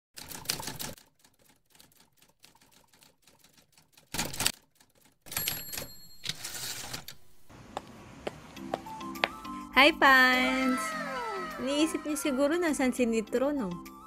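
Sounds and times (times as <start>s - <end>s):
typewriter keys clacking: 0.2s - 7.2s.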